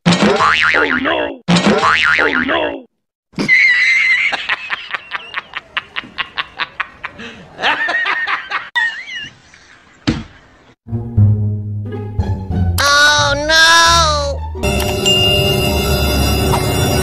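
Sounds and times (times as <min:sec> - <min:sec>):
high-pitched snickering laugh: 0:03.4 - 0:09.3.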